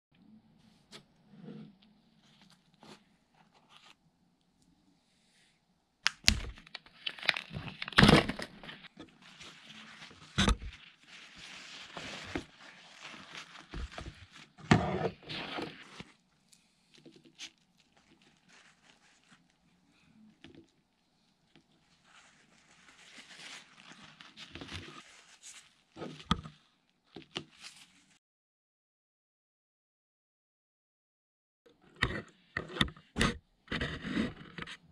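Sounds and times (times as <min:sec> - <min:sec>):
plastic film crinkling and tearing: 0:06.0 - 0:20.8, 0:21.5 - 0:26.7.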